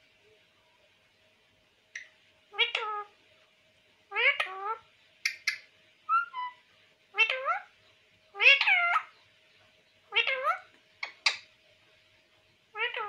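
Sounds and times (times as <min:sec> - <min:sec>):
faint steady tone: 0:00.0 - 0:08.4
parakeet calling: 0:02.0 - 0:03.1, 0:04.1 - 0:11.5, 0:12.7 - 0:13.0.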